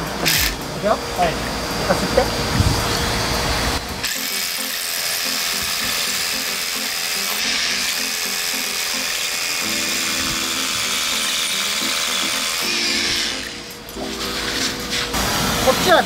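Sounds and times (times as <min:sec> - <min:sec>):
hammer drill into concrete: 0:00.3 - 0:00.6, 0:04.0 - 0:13.8
vacuum hose sucking dust: 0:09.6 - 0:16.0.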